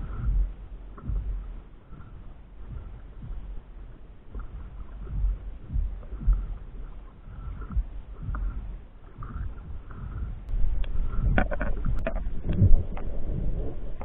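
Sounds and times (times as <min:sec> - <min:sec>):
water sloshing against paddleboard: 0:00.0 - 0:14.0.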